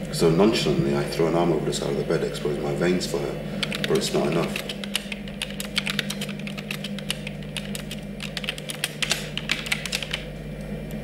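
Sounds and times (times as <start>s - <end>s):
steady low hum: 0.0s - 11.0s
keyboard typing: 3.6s - 10.3s.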